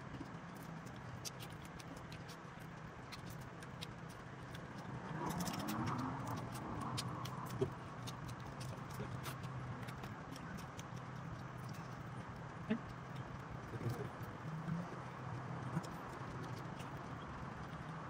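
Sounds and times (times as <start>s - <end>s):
steady low hum: 0.0s - 18.0s
crab shells cracking: 0.4s - 14.0s.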